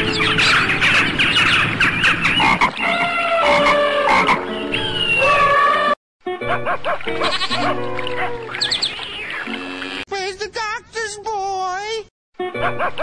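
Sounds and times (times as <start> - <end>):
chorus of animal calls: 0.1 - 6.0, 7.1 - 10.0.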